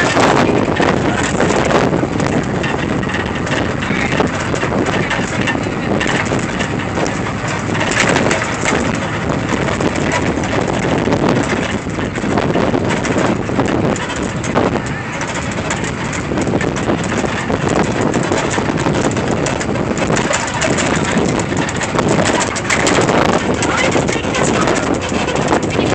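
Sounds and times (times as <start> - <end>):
trolley ride noise: 0.0 - 25.9
wind buffeting microphone: 0.0 - 25.9.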